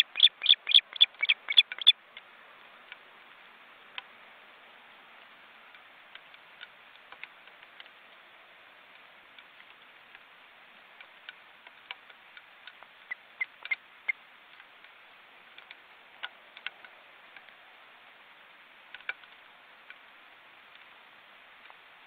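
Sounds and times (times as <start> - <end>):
ticks and clicks: 0.0 - 2.3
faint microphone hiss: 0.0 - 22.0.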